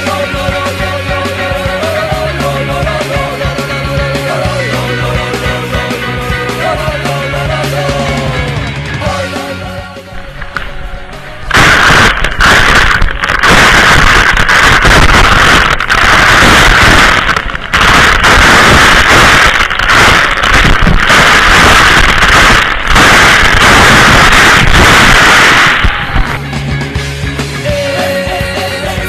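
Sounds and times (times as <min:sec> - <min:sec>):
waterfall water rushing: 0:10.2 - 0:26.4.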